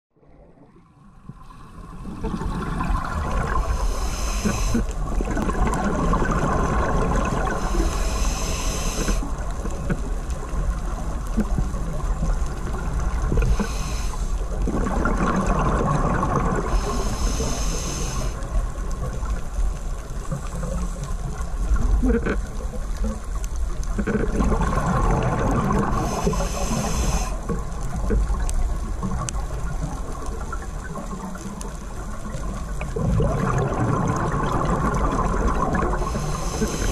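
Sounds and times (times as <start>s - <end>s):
low underwater rumble: 0.1s - 36.9s
water gurgling and bubbling: 0.2s - 36.9s
high hiss: 3.4s - 4.9s, 7.4s - 9.3s, 13.4s - 14.5s, 16.7s - 18.4s, 25.9s - 27.5s, 36.0s - 36.9s.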